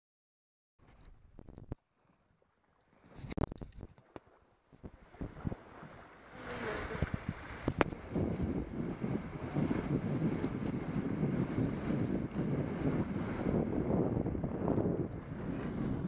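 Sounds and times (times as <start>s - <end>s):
water rushing along a hull: 0.8s - 16.0s
wind buffeting the microphone: 4.7s - 16.0s.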